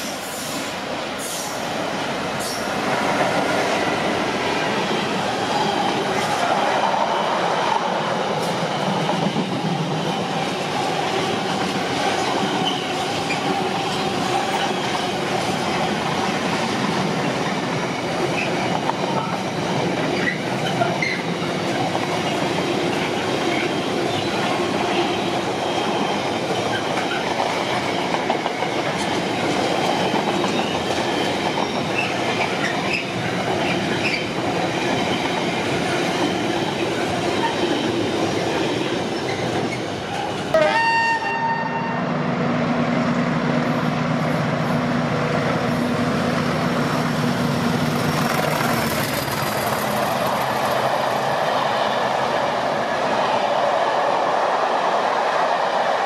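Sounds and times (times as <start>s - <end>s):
train wheels rumbling on rails: 0.0s - 40.6s, 42.0s - 56.0s
rail clicks: 43.4s - 56.0s.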